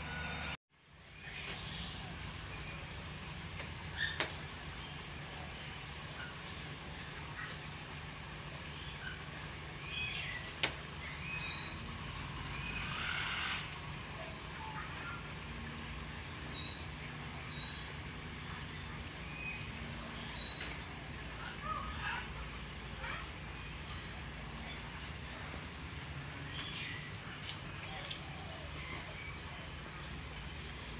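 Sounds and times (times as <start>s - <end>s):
steady high hiss: 0.0s - 30.9s
sharp click: 10.6s - 10.8s.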